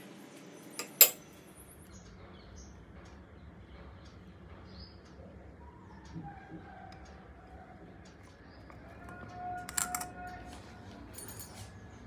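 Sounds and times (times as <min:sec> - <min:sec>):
metal spoon knocking on bowl: 0:00.8 - 0:01.2
small birds chirping: 0:01.8 - 0:09.6.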